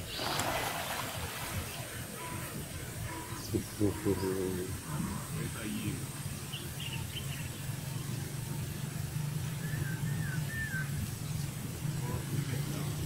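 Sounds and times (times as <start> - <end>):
low engine hum: 4.8 - 13.0.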